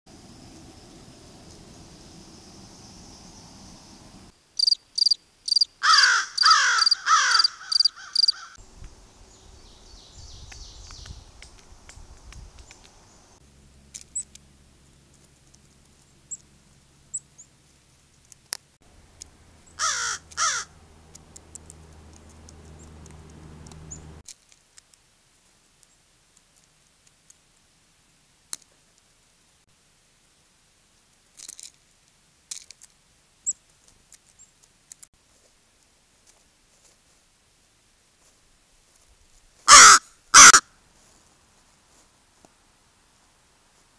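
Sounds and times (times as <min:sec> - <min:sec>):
crows cawing: 0:05.8 - 0:08.6, 0:19.8 - 0:20.8, 0:39.7 - 0:40.7
sharp clicks: 0:21.1 - 0:23.9.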